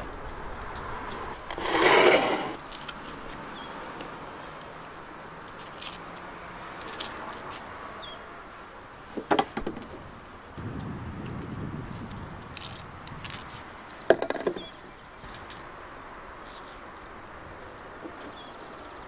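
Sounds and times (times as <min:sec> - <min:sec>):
rustling scrape: 0:01.1 - 0:03.2.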